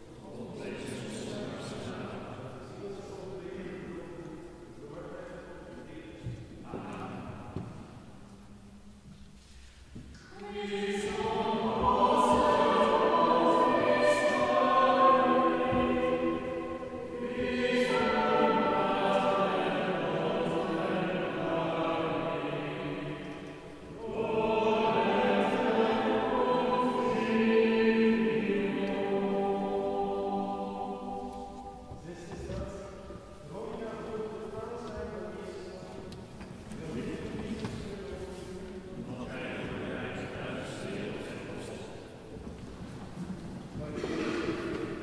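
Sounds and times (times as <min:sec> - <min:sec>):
group singing slow chant: 0:10.2 - 0:33.8, 0:36.8 - 0:42.1, 0:43.8 - 0:45.0.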